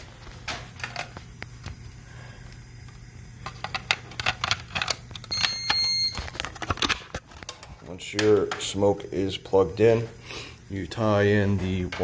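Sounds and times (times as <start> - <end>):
short high electronic beep: 5.3 - 6.2.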